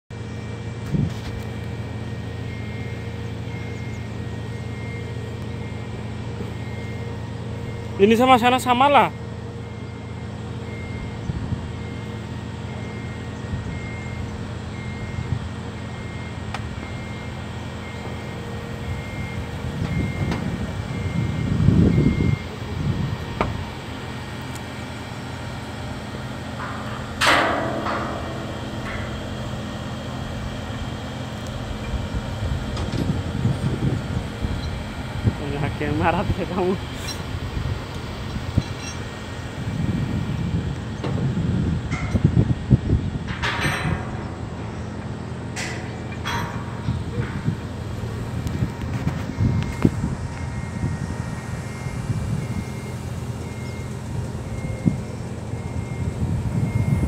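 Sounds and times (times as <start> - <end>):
mechanical hum with held tones: 0.1 - 57.0
loud metallic bang with ringing: 26.4 - 31.3, 43.3 - 48.4.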